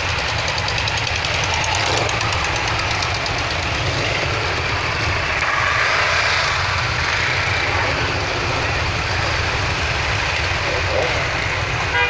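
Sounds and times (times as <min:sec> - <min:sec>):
motorcycles riding past: 0:00.0 - 0:12.0.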